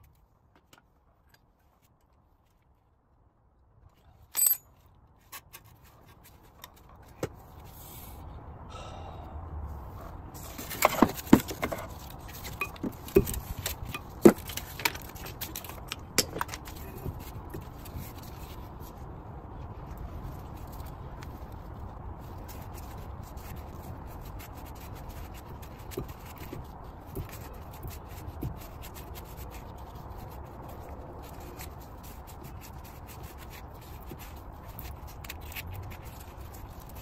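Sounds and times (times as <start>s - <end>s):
metal clinks and taps: 4.3s - 4.7s.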